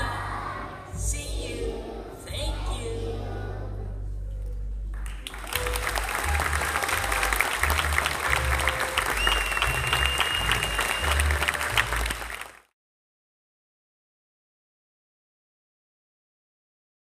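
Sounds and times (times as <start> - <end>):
backing music with bass line: 3.8 - 12.2
applause: 4.9 - 12.8.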